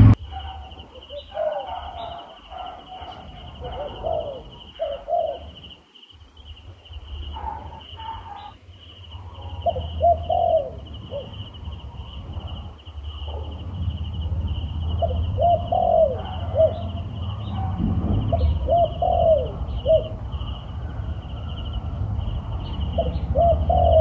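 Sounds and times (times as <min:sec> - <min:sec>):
high pulsing trill: 0:00.0 - 0:00.2
low rumble: 0:00.0 - 0:00.4, 0:10.8 - 0:24.0
dove cooing: 0:00.0 - 0:05.8, 0:07.2 - 0:24.0.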